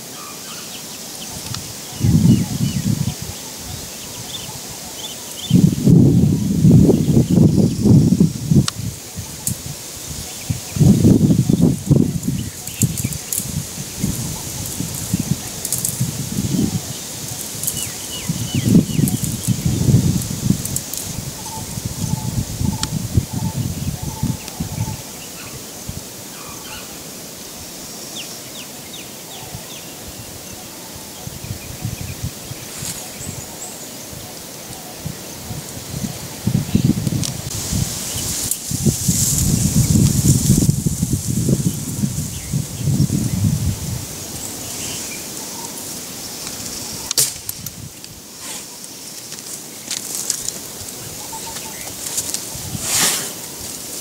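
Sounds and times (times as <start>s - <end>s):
steady outdoor hiss: 0.0s - 54.0s
snaps and rustles of dry grass: 8.5s - 23.0s, 32.6s - 33.4s, 36.9s - 43.2s, 43.8s - 54.0s
sharp crack: 47.1s - 47.8s.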